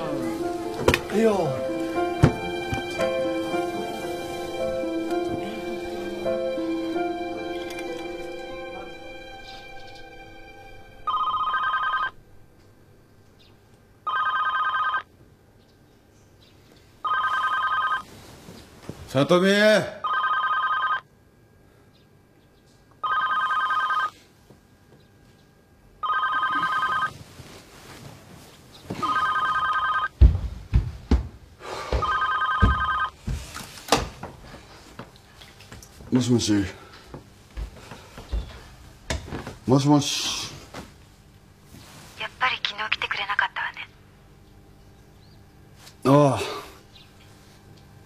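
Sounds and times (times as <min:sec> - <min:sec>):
telephone ringing: 0:11.0 - 0:12.2, 0:14.0 - 0:15.1, 0:17.0 - 0:18.1, 0:20.0 - 0:21.1, 0:23.0 - 0:24.2, 0:26.0 - 0:27.2, 0:29.0 - 0:30.1, 0:32.0 - 0:33.2
dull thumps: 0:30.1 - 0:34.4.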